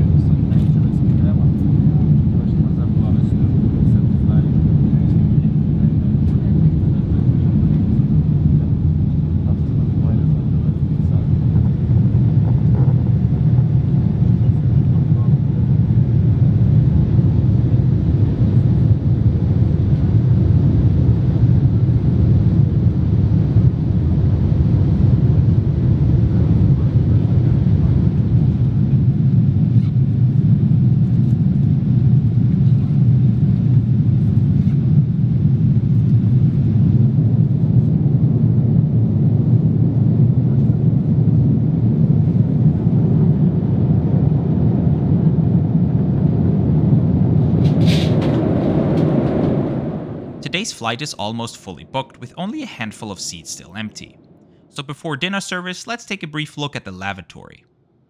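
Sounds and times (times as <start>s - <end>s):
airplane cabin engine rumble: 0.0s - 56.5s.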